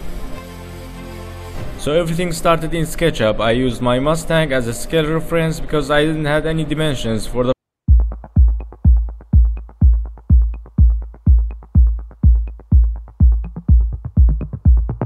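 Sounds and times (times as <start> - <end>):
deep kick drum: 7.9 - 15.0.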